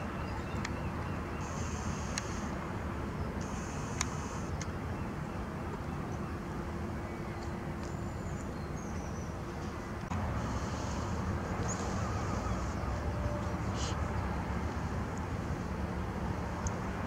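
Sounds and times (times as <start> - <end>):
low outdoor rumble: 0.0 - 17.0
faint bird calls: 10.4 - 14.2.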